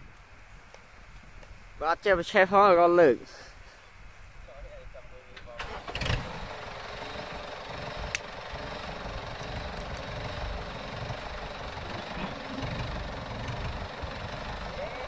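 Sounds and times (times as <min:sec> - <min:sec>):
tractor diesel engine idling: 0:05.6 - 0:15.0.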